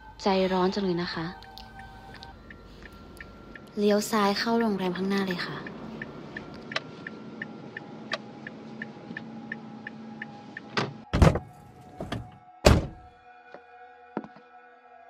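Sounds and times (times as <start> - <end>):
eerie background music: 0.0 - 15.0
car engine hum: 1.4 - 12.3
car turn signal clicking: 5.6 - 10.8
car doors slamming: 10.7 - 13.1.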